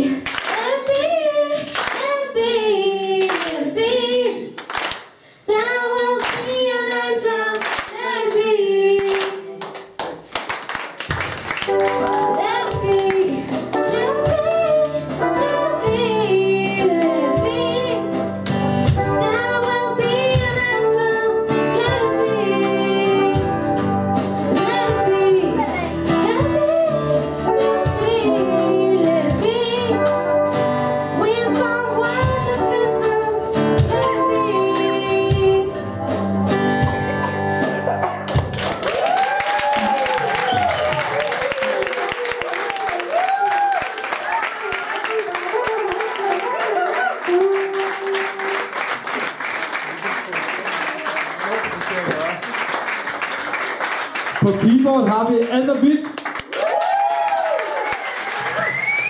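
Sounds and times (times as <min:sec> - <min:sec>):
girl singing lead: 0:00.0 - 0:04.7, 0:05.4 - 0:09.7, 0:11.7 - 0:37.8, 0:43.1 - 0:48.8
hand claps: 0:00.2 - 0:01.1, 0:01.7 - 0:02.1, 0:03.2 - 0:03.7, 0:04.6 - 0:05.2, 0:06.0 - 0:08.4, 0:09.0 - 0:14.0, 0:38.3 - 0:54.5, 0:55.4 - 0:59.0
rock band playing live: 0:11.6 - 0:38.8.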